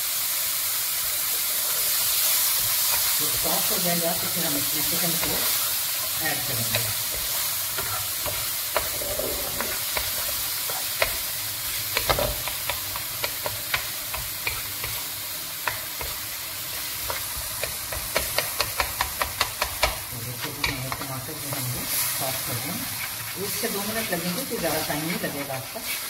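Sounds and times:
tomato sizzling in oil: 0.0 - 26.0
wooden spoon tapping and scraping pan: 4.6 - 15.0, 15.6 - 22.0.

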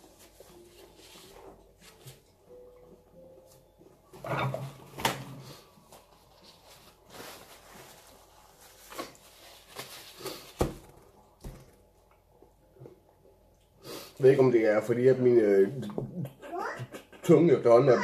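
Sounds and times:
paper tissue rustling: 0.0 - 2.4, 5.4 - 10.9.

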